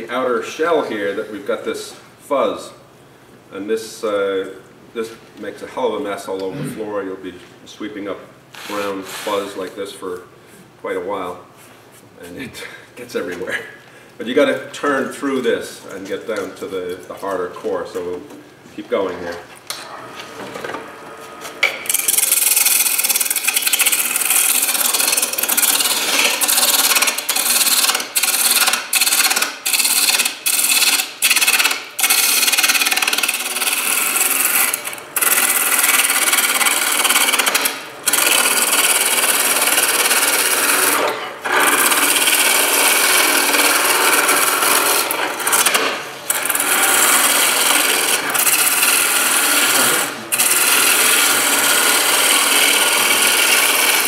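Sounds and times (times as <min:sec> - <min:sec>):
lathe tool hissing cut: 0:46.3 - 0:54.0.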